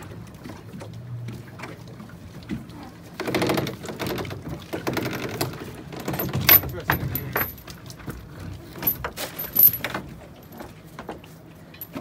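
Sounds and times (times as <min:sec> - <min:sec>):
anchor chain rattling: 0:03.2 - 0:11.2, 0:11.8 - 0:12.0.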